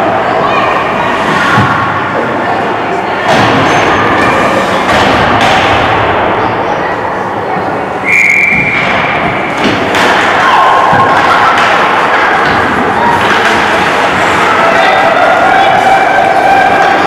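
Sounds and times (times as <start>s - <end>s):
noisy rink din: 0.0s - 17.0s
scattered voices: 0.0s - 17.0s
hockey sticks and pucks thudding: 8.5s - 17.0s.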